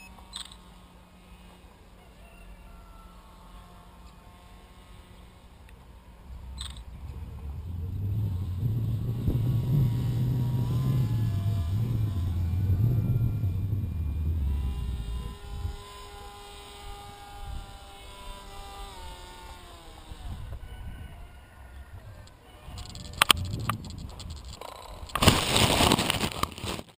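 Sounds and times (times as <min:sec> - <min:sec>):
electric motor and propeller whining: 0:00.0 - 0:25.2
loud low rumble: 0:06.1 - 0:15.8, 0:22.8 - 0:24.6.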